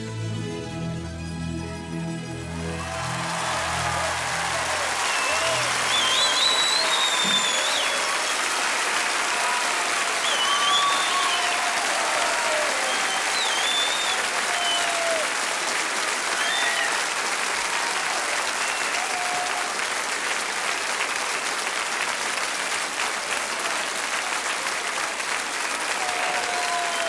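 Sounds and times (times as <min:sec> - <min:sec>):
audience applauding: 0:02.6 - 0:27.0
whoops and whistles: 0:04.8 - 0:08.6, 0:10.2 - 0:11.7, 0:12.6 - 0:15.2, 0:16.4 - 0:17.0, 0:18.6 - 0:19.5.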